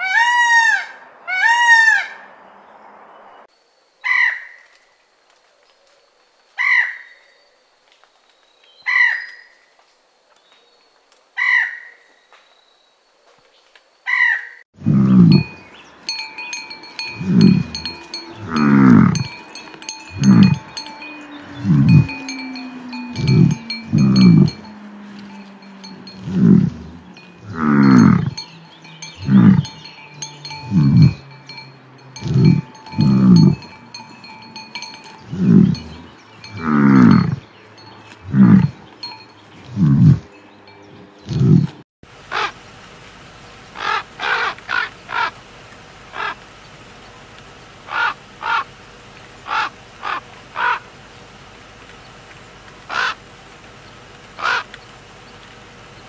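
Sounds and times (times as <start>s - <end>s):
cattle lowing: 14.8s - 41.8s
steady ringing chime: 15.0s - 41.2s
crow cawing: 43.8s - 45.3s, 47.9s - 48.7s, 49.5s - 50.9s, 52.9s - 53.2s, 54.4s - 54.7s.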